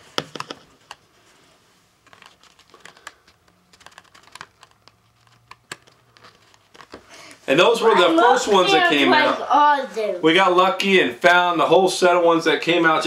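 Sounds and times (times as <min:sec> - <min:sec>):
plastic blister packaging crinkling: 0:02.0 - 0:07.1.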